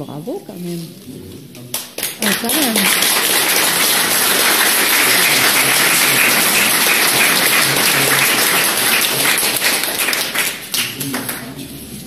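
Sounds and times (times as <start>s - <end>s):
people clapping: 1.7s - 12.0s.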